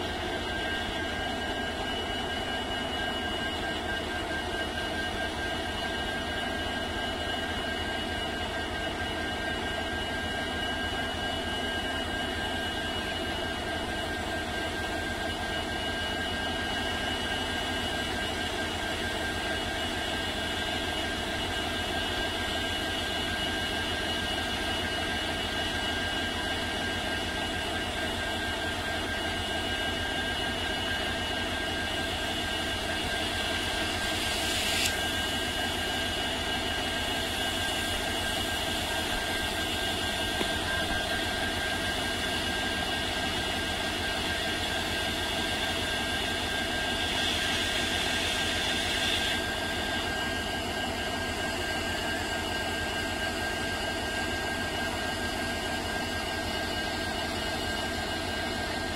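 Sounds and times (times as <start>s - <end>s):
high whine: 32.3s - 45.8s.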